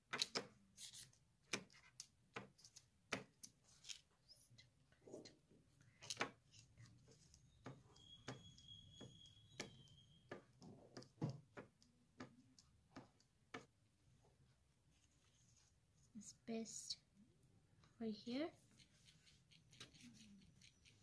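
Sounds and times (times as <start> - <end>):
glue stick tapping on paper: 7.3 - 13.7.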